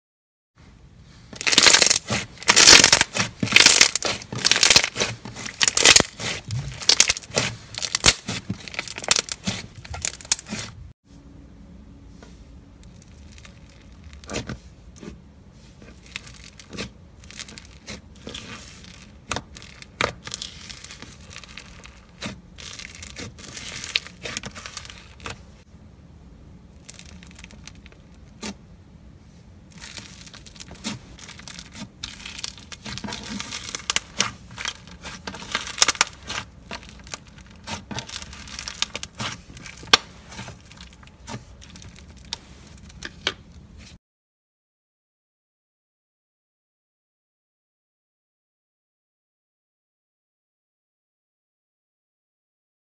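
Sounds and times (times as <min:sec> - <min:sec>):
slime crackling: 0:01.4 - 0:10.7, 0:29.8 - 0:42.9
slime squishing: 0:01.4 - 0:10.8, 0:12.9 - 0:25.6, 0:26.8 - 0:28.6, 0:29.7 - 0:43.2.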